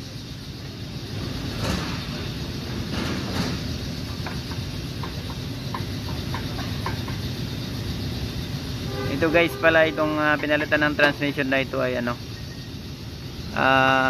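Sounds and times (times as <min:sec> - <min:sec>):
workshop rumble: 0:00.0 - 0:14.0.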